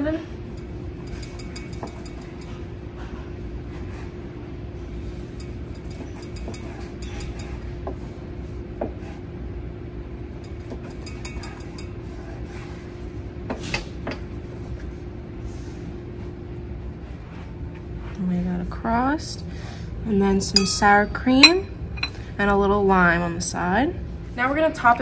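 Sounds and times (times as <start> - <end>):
steady low hum: 19.7 - 22.6
light knocks and clinks: 20.6 - 22.2.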